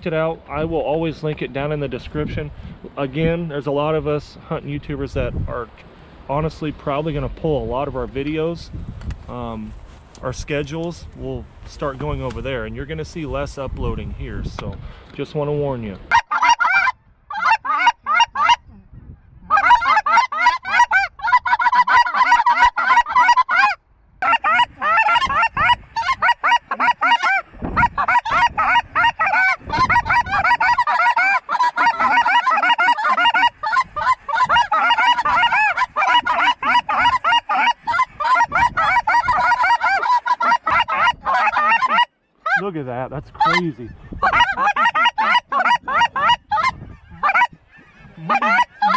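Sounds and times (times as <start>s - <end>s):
wind buffeting microphone: 0.0s - 16.2s, 16.8s - 22.0s, 23.8s - 32.4s, 33.1s - 40.0s, 40.6s - 41.6s, 42.6s - 48.9s
flock of geese honking: 16.1s - 18.6s, 19.5s - 42.7s, 43.4s - 48.9s.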